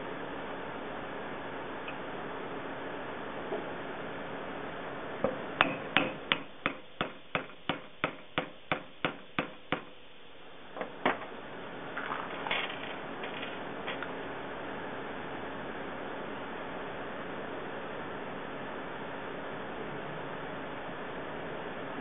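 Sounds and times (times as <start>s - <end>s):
hammer tapping on metal tube: 5.2s - 9.9s.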